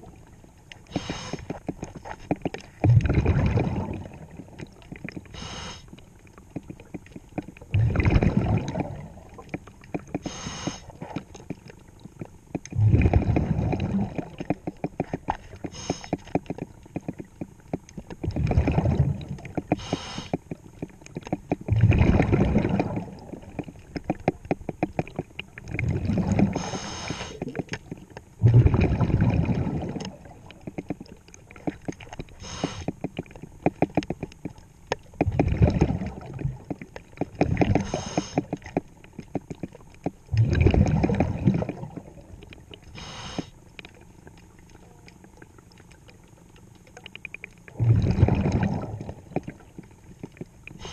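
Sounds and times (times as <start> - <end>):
exhaled bubbles burbling: 0.0 - 50.9
regulator inhale hiss: 0.9 - 1.6, 5.3 - 5.9, 10.2 - 10.9, 15.7 - 16.2, 19.8 - 20.4, 26.6 - 27.4, 32.4 - 32.9, 37.8 - 38.5, 42.9 - 43.6
fine crackling clicks: 14.4 - 18.3, 30.0 - 35.4.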